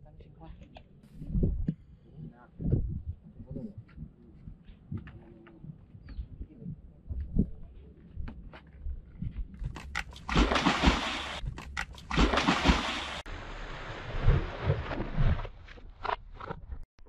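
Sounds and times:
heavy splashing in water: 10.2s - 15.5s.

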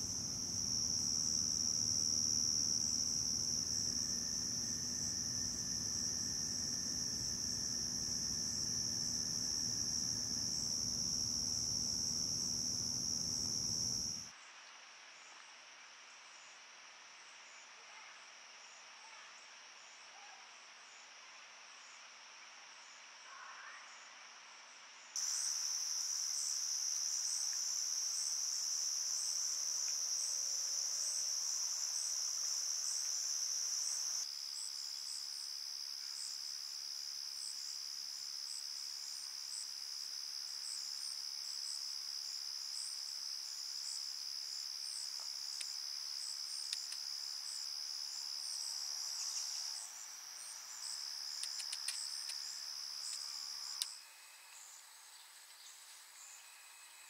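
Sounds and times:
crickets trilling: 0.0s - 14.3s, 25.2s - 56.6s
pulsing insect call: 0.0s - 14.3s
faint hiss: 0.0s - 57.0s.

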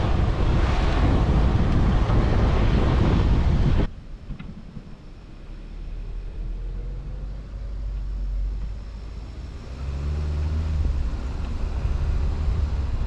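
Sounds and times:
wind rushing on microphone: 0.0s - 5.4s, 9.5s - 13.0s
low rumble: 0.0s - 13.0s.

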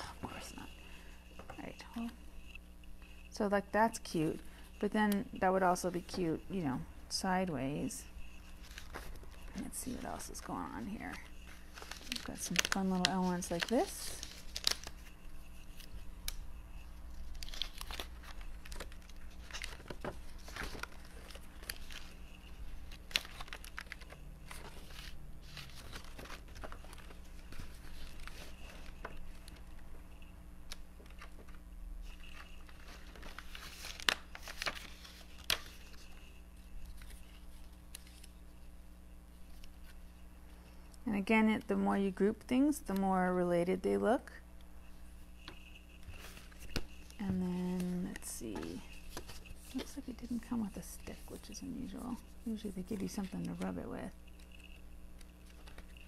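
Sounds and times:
faint steady hum: 0.0s - 56.0s
paper rustling and crinkling: 7.8s - 38.6s, 44.8s - 56.0s.

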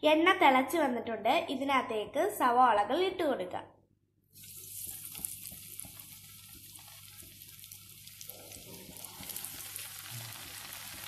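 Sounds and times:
oil sizzling and crackling: 4.3s - 11.0s.

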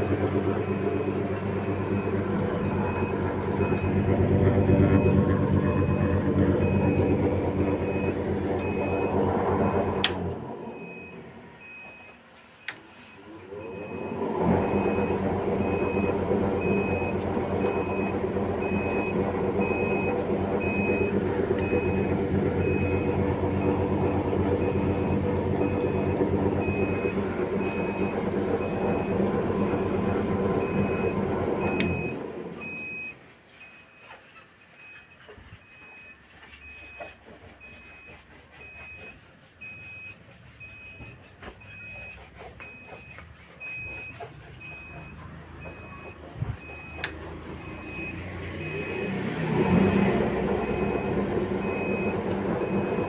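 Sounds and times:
motor-driven slicer running: 0.0s - 11.2s, 13.4s - 32.6s.

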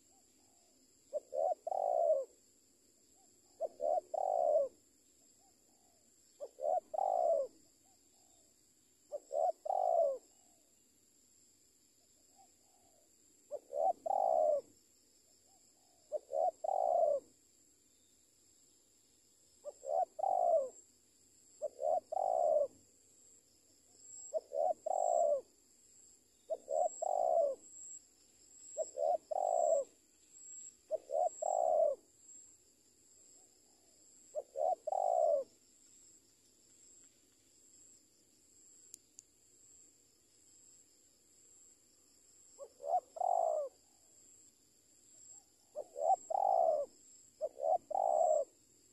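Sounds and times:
dove cooing: 0.0s - 2.4s, 3.2s - 4.8s, 5.4s - 8.5s, 9.1s - 10.7s, 12.3s - 14.8s, 15.4s - 17.4s, 19.6s - 20.8s, 21.6s - 22.8s, 24.0s - 25.5s, 26.5s - 28.0s, 28.7s - 32.4s, 33.3s - 35.6s, 42.5s - 44.4s, 45.2s - 48.6s.

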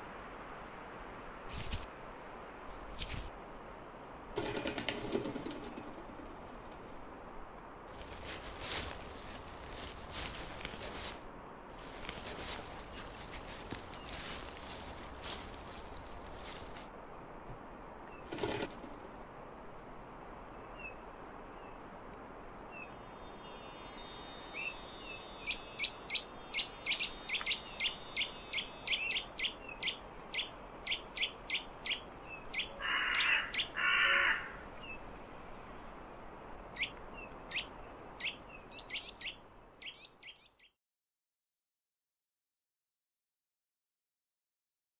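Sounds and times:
outdoor ambience hiss: 0.0s - 40.6s
harsh rasping bird calls: 25.5s - 35.0s.

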